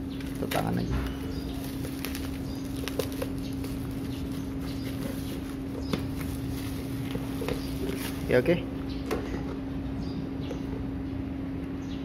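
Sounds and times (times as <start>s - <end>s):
plastic bag and bubble wrap crinkling: 0.0s - 8.6s
steady hum: 0.0s - 12.0s.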